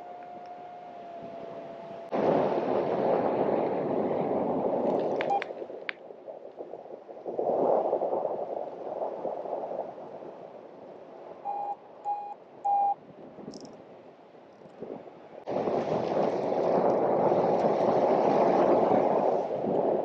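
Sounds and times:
wind rushing over microphone: 0.0s - 20.0s
variometer beeps: 5.3s - 5.5s, 11.4s - 13.0s.

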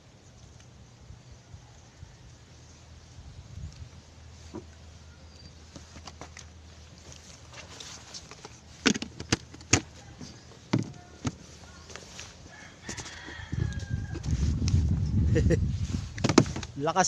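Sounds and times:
fishing gear knocks and clunks: 7.6s - 11.4s, 16.2s - 16.8s.

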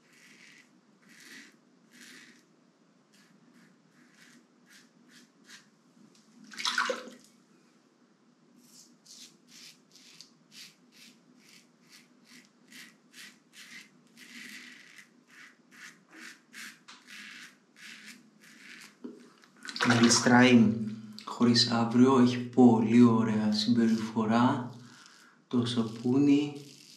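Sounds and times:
razor shaving stubble: 0.0s - 2.4s, 3.1s - 5.7s, 8.6s - 19.5s, 23.6s - 26.9s.

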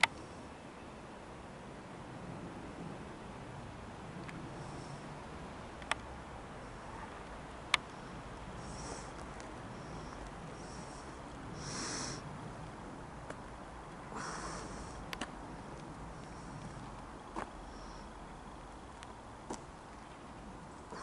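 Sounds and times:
distant airliner rumble: 2.0s - 21.0s
soft hissing puffs: 4.4s - 5.3s, 7.9s - 12.4s, 14.1s - 15.2s, 16.0s - 18.2s
faint clicks: 5.8s - 6.1s.

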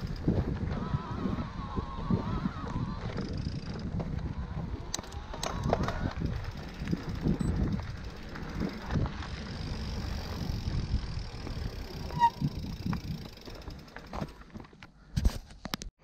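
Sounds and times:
wind on microphone: 0.0s - 13.4s
bike tyre rumble and rattle: 0.0s - 15.9s
brief squeak: 12.1s - 12.5s.

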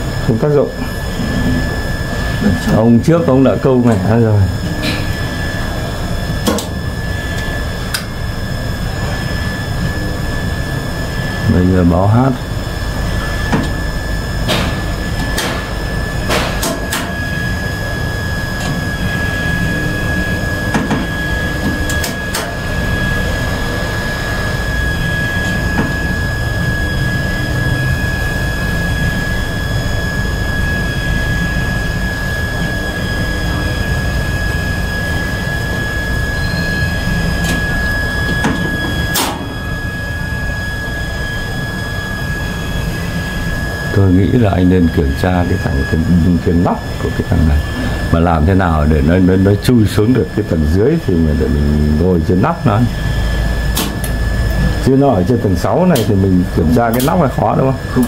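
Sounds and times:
control cabinet hum and whine: 0.0s - 58.0s.

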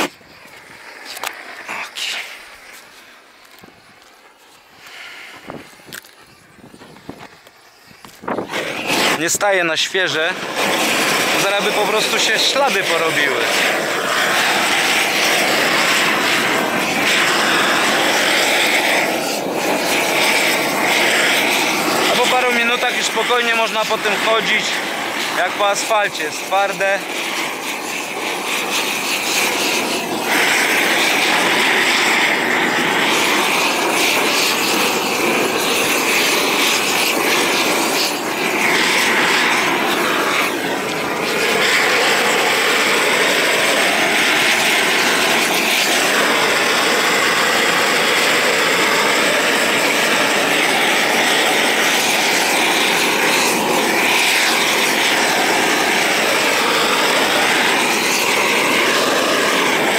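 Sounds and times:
gas torch flame burning: 0.0s - 59.9s.

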